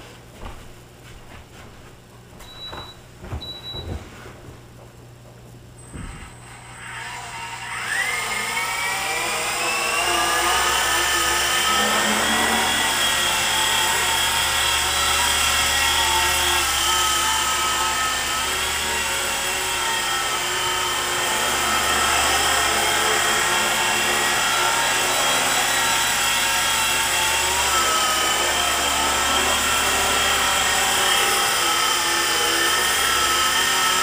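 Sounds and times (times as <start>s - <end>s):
toy helicopter motor whine: 6.3s - 34.0s.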